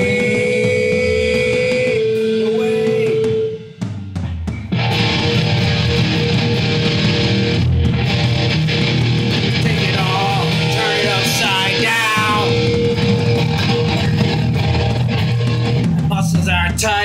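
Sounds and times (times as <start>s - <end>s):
person singing: 0.0s - 3.7s, 9.6s - 12.7s
distorted electric guitar riff: 0.0s - 17.0s.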